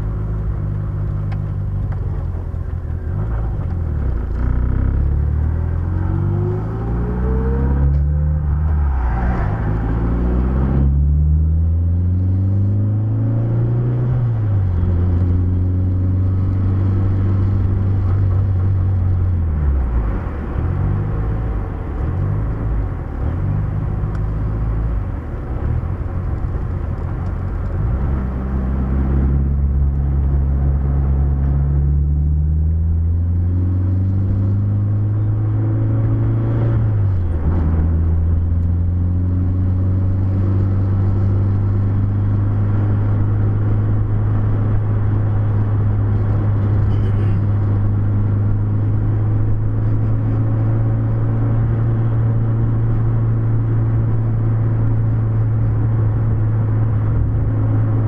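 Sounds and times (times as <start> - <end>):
car engine accelerating: 0.0 - 58.0.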